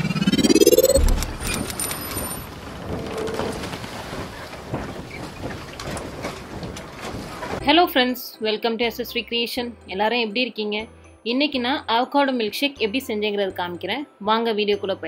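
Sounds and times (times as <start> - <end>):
rising pitched sweep: 0.0 - 1.9.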